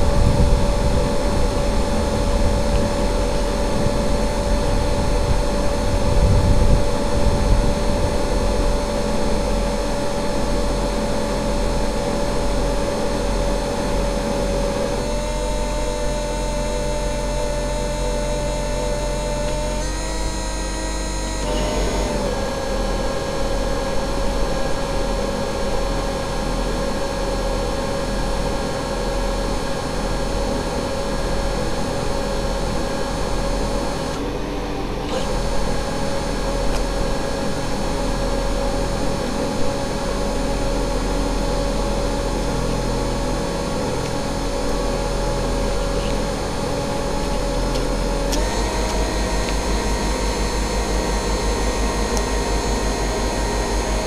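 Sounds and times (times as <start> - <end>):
wind rumble on microphone: 0.0 - 11.6
electric motors whining: 0.0 - 54.0.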